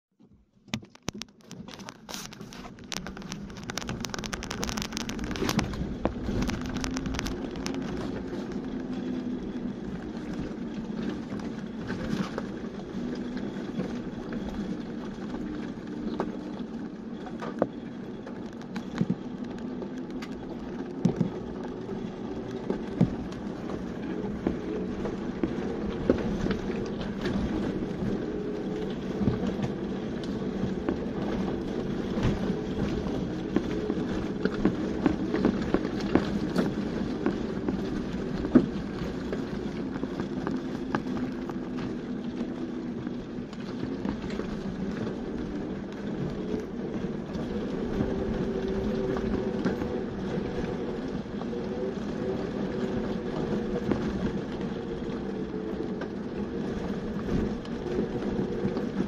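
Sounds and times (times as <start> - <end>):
vehicle engine at low revs: 0.2 - 59.0
tyres crunching over stones: 0.8 - 8.6.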